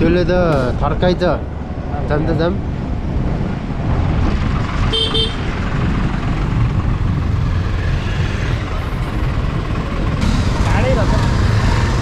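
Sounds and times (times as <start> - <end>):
wind rumbling on microphone: 0.0 - 10.2
motorcycle riding: 0.0 - 12.0
vehicle horn toot: 4.9 - 5.5.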